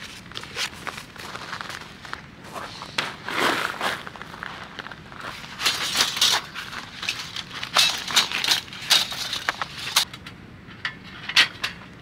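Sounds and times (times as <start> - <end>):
gear and wood clattering: 4.5 - 12.0.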